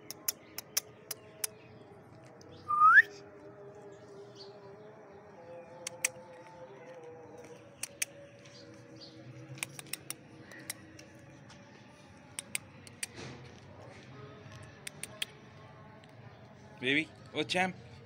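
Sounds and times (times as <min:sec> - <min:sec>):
puppy claws clicking on concrete: 0:00.0 - 0:01.6, 0:05.8 - 0:16.2.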